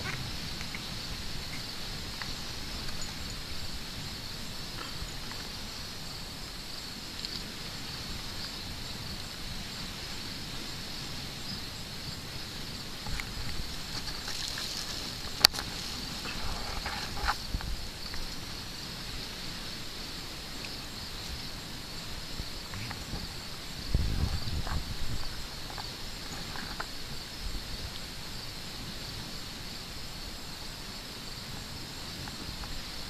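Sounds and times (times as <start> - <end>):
high-pitched insect chorus: 0.0 - 33.0.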